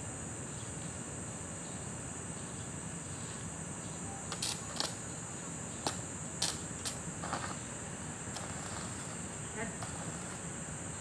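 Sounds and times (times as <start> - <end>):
high-pitched insect trill: 0.0 - 11.0.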